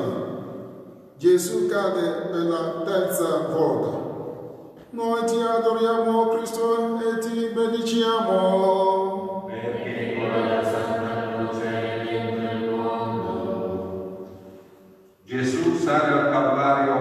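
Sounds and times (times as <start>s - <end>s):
group singing a slow hymn: 8.5s - 14.8s.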